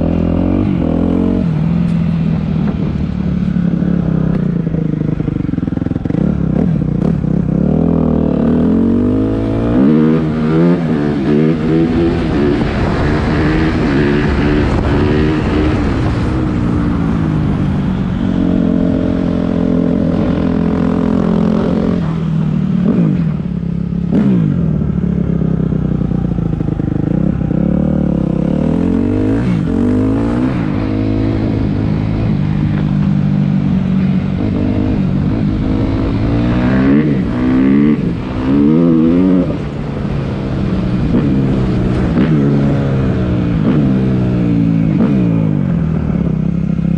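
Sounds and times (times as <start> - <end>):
motorcycle engine revving: 0.0 - 46.9.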